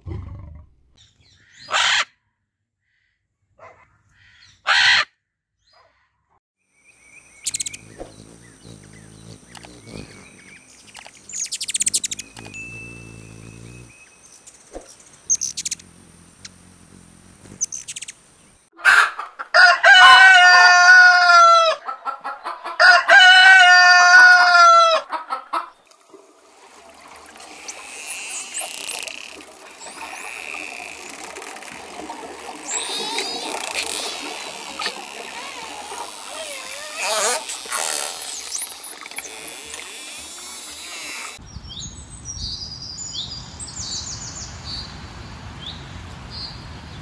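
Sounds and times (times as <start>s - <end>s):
soft chirping: 7.0s - 18.7s, 25.8s - 26.6s
rooster crowing: 18.8s - 21.8s, 22.7s - 25.1s.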